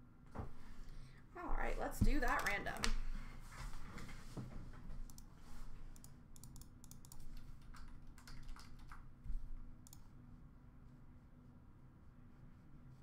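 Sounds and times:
keyboard typing clicks: 2.2 - 3.0, 6.0 - 9.1.

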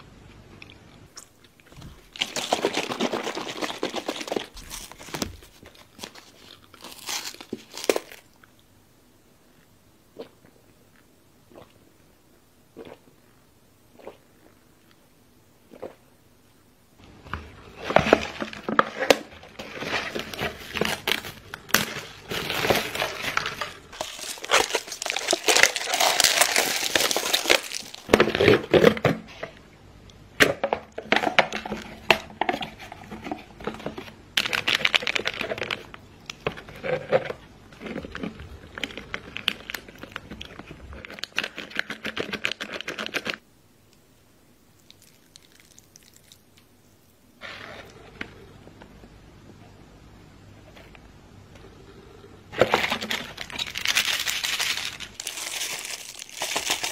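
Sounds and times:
plastic wrap crinkling and tearing: 2.0 - 8.3, 17.8 - 28.8, 33.7 - 36.0, 37.8 - 43.4, 52.6 - 56.9.

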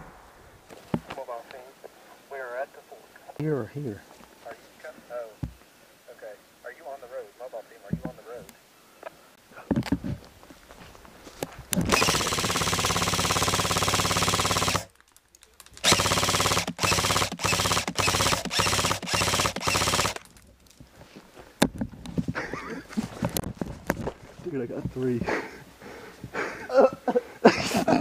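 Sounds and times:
automatic gunfire: 11.9 - 14.9, 15.8 - 20.2.

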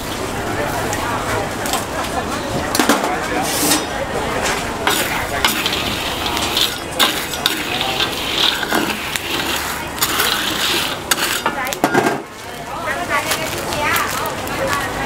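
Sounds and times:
stirring and scraping in a pan: 2.8 - 14.2.

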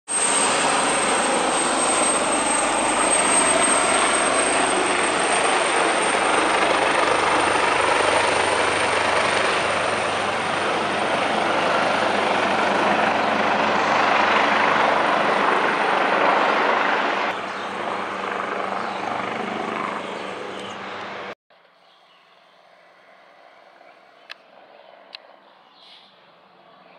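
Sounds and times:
helicopter rotor and engine noise: 0.1 - 21.4, 23.0 - 26.9
high turbine whine: 0.1 - 21.4.

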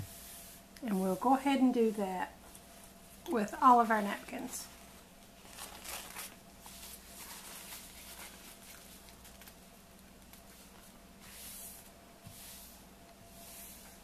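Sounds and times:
paper napkins rustling: 3.6 - 11.9.

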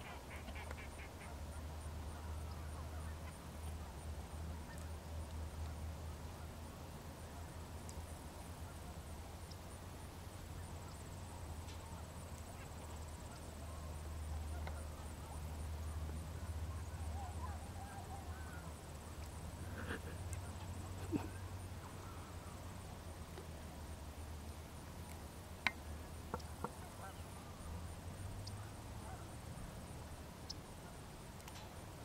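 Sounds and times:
faint bird calls: 0.0 - 4.0, 10.4 - 23.7, 25.6 - 31.1.

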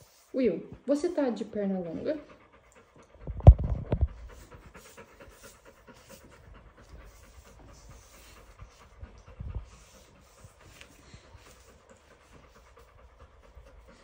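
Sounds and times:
dog panting: 0.0 - 14.0
low thumps: 3.2 - 4.5.

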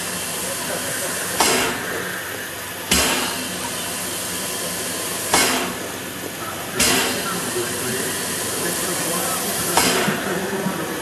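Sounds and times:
loud steam blasts: 0.0 - 11.0
steam hissing: 0.0 - 11.0.

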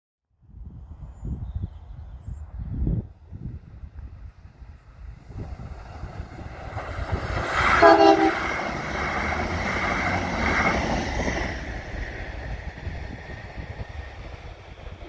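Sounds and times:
train wheels rumbling on rails: 2.7 - 15.0
train horn blast: 7.8 - 8.6.

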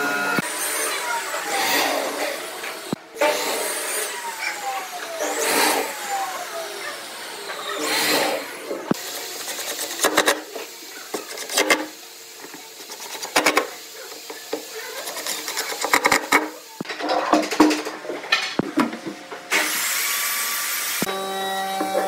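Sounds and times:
cordless drill whirring: 0.0 - 9.3.

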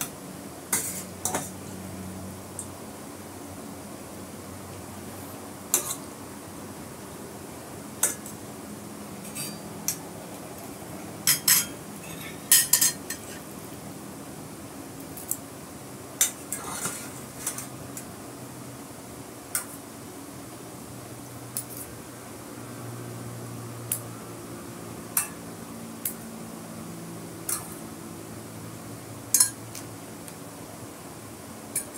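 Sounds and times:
metal utensils clinking on glass plate: 11.2 - 13.4, 29.3 - 29.6.

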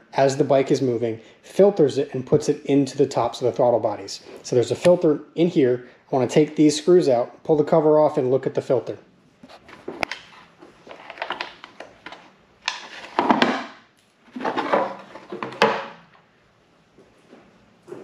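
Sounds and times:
plastic cover scraping: 9.4 - 16.0.

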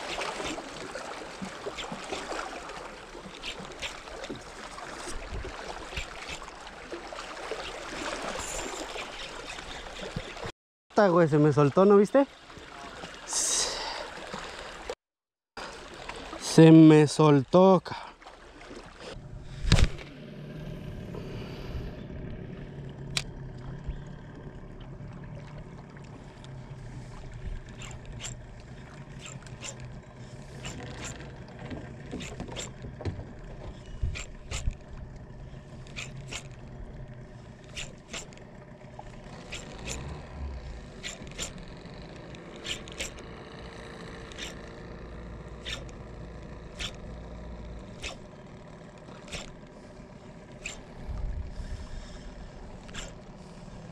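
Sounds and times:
fishing reel whirring: 0.0 - 4.3, 5.0 - 10.5, 26.2 - 53.9.

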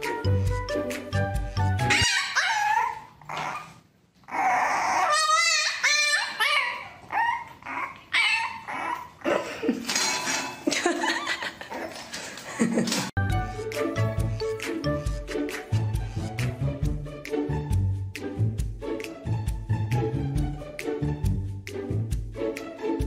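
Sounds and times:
background music: 0.0 - 2.3, 13.2 - 23.0
puppy whimpering and yipping: 1.9 - 9.3.

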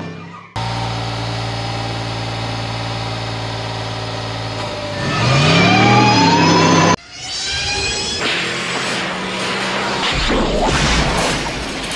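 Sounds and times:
car engine idling and revving: 0.6 - 7.0, 8.2 - 10.4.

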